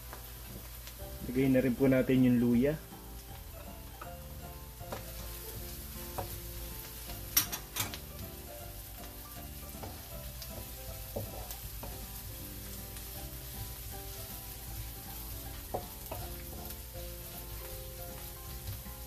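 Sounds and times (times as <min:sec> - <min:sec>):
food sizzling in oil: 0:00.0 - 0:19.0
wooden spatula stirring: 0:09.1 - 0:19.0.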